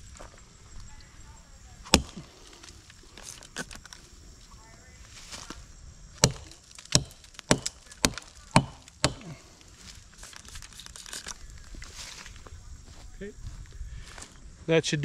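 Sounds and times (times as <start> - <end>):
hatchet chopping tree trunk: 1.9 - 2.4, 6.2 - 9.5.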